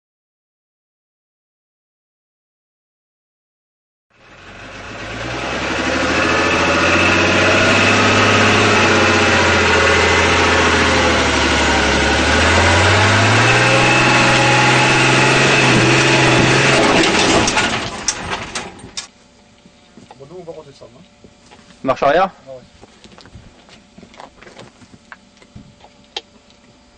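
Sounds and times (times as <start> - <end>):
truck engine running loudly: 4.1 - 19.1
sharp knocks: 14.0 - 19.1.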